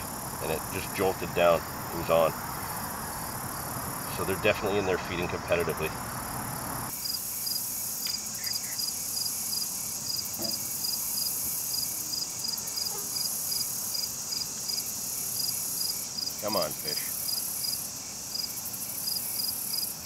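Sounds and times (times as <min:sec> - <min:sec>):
cricket chirping: 0:00.0 - 0:20.0
insects trilling: 0:00.0 - 0:20.0.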